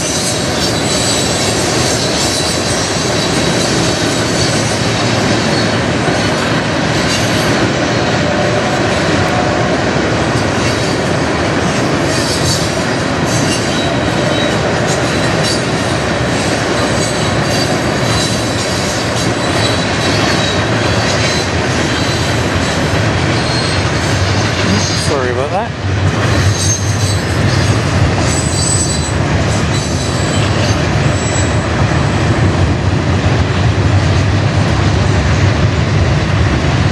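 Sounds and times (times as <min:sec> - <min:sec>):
high wheel squeal: 0:00.0 - 0:06.5, 0:16.8 - 0:25.1, 0:26.4 - 0:31.6
train wheels rumbling on rails: 0:00.0 - 0:36.9.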